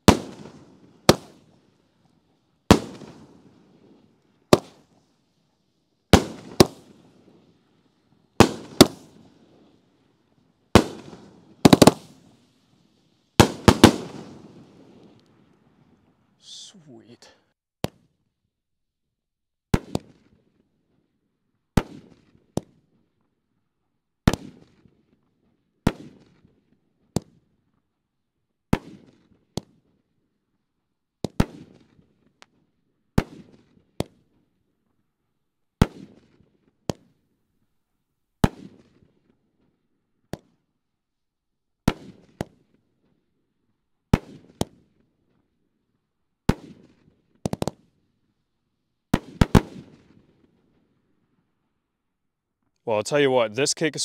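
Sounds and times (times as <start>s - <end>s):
fainter firework crack: 0.0s - 3.4s, 4.5s - 5.1s, 6.1s - 7.0s, 8.4s - 9.3s, 10.8s - 12.4s, 13.4s - 18.2s.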